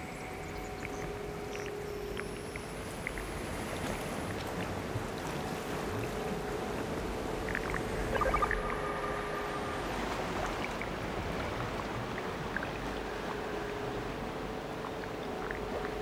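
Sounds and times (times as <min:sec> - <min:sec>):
noisy electronic wash: 0:07.3 - 0:12.5
held electronic tone: 0:08.0 - 0:10.4
short higher tones: 0:08.1 - 0:10.5.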